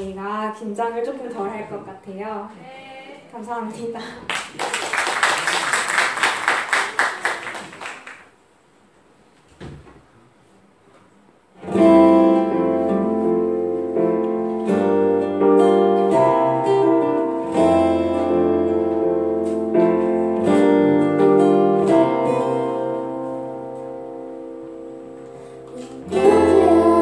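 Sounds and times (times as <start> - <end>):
guitar chords strummed: 11.6 - 27.0.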